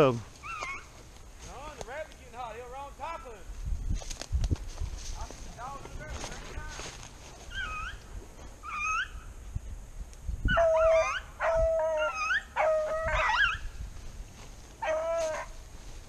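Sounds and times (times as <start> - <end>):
hounds baying: 0.4 - 0.9, 7.5 - 8.0, 8.6 - 9.2, 10.5 - 13.7, 14.8 - 15.6
hounds yelping: 0.4 - 1.0, 7.4 - 9.3, 10.5 - 13.7, 14.8 - 15.6.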